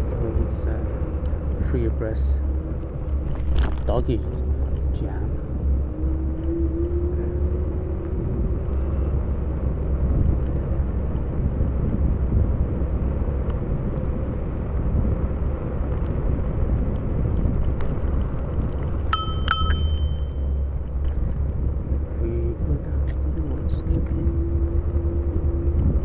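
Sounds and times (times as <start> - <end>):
wind rumble on microphone: 0.0 - 26.0
bright ringing dings: 19.1 - 20.6.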